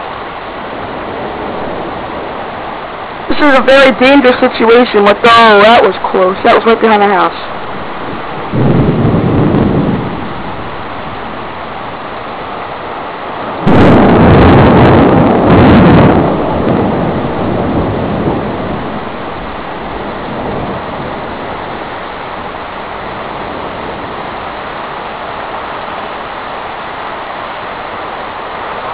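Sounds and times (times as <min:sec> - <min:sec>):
heavy rain pouring: 0:00.0 - 0:28.9
thunder crash and rumble: 0:07.8 - 0:25.6.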